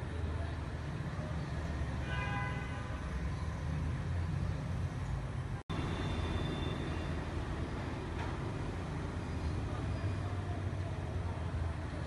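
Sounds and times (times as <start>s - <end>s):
road traffic rumble: 0.0s - 12.0s
vehicle horn: 2.0s - 3.0s.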